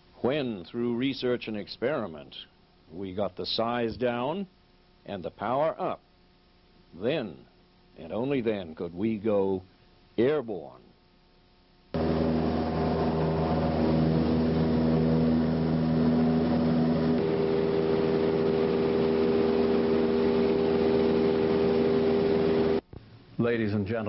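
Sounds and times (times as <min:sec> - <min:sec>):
light aircraft engine droning: 0:12.0 - 0:22.8.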